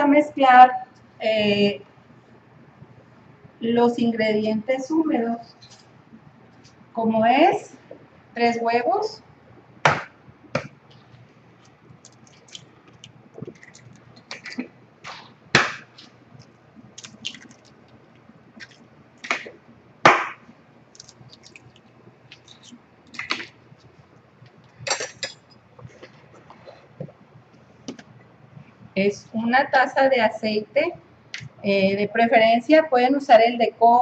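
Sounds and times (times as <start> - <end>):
eggs cracking on bowl rim: 15.6 - 19.5, 20.1 - 23.6.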